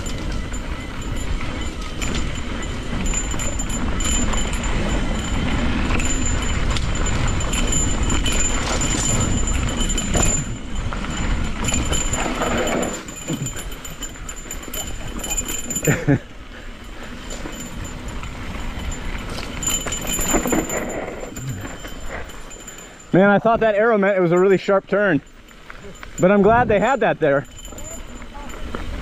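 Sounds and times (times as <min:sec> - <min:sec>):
wind rumble on microphone: 0:00.0 - 0:16.2
bike rattling: 0:00.0 - 0:29.0
bike tyres rolling over rocks: 0:00.0 - 0:29.0.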